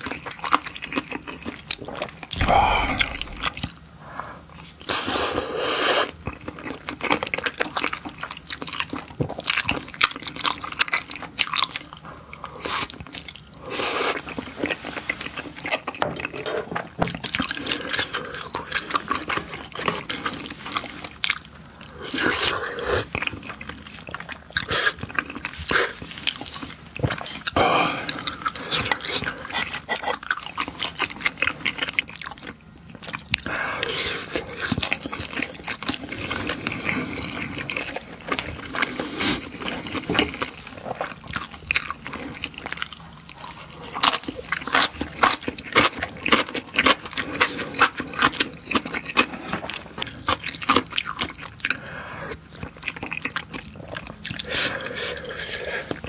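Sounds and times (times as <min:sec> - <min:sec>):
wet chewing and mouth clicks: 0:00.0 - 0:03.7, 0:17.1 - 0:56.0.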